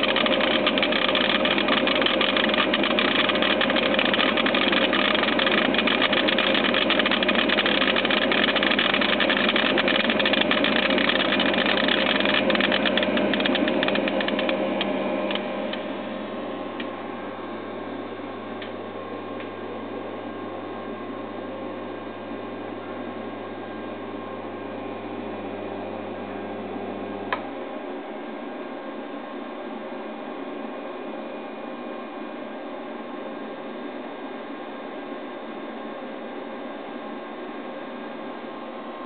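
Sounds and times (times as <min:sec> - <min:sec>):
rice grains clicking: 0:00.0 - 0:15.4
vibrating feeder buzz and hum: 0:00.0 - 0:25.2.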